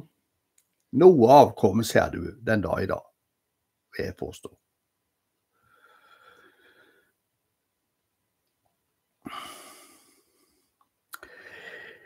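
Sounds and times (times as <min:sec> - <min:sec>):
man breathing: 0:05.5 - 0:07.3, 0:09.2 - 0:12.0
faint mouth click: 0:10.8 - 0:11.3.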